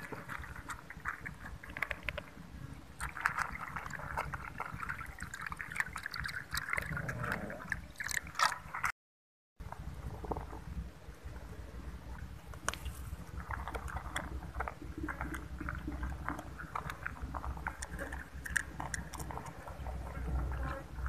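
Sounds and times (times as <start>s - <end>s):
cats crunching dry kibble: 0.0s - 8.9s, 12.6s - 21.0s
low steady rumble: 9.6s - 21.0s.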